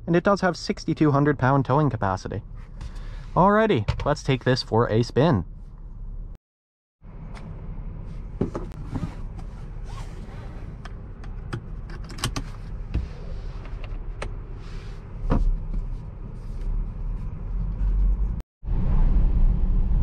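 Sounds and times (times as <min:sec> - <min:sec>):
clicks and knocks of controls: 0:10.8 - 0:12.6.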